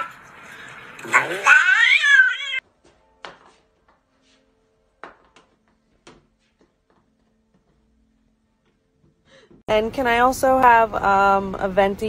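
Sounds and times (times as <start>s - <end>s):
cat yowling: 1.1s - 2.6s.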